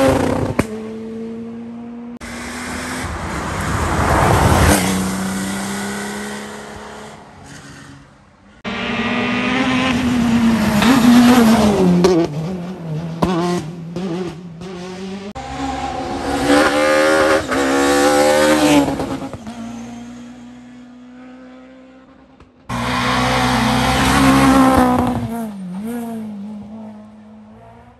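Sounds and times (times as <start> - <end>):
rally car engines revving hard: 8.6 - 27.9.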